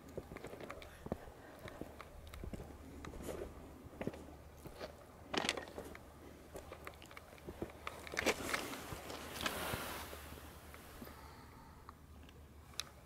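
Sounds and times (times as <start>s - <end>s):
footsteps crunching on gravel: 0.2s - 5.9s.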